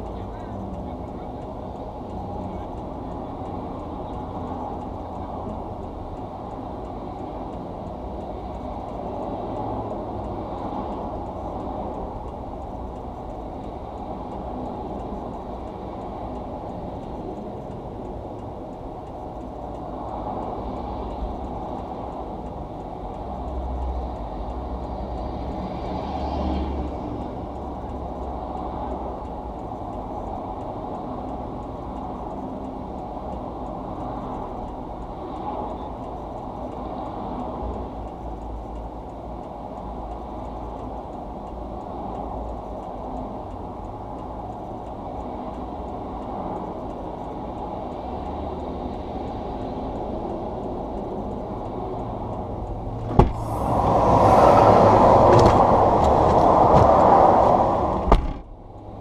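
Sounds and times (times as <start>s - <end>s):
highway traffic rushing: 0.0s - 59.0s
car hatch latch click: 53.0s - 53.5s, 58.0s - 58.5s.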